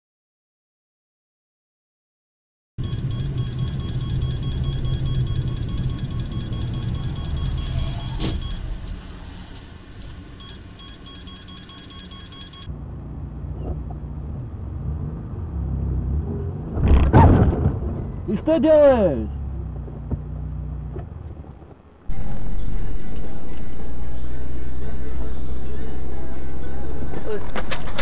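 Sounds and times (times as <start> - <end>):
faint high whine: 2.8 - 12.7, 22.1 - 27.7
car engine and road rumble: 2.8 - 28.0.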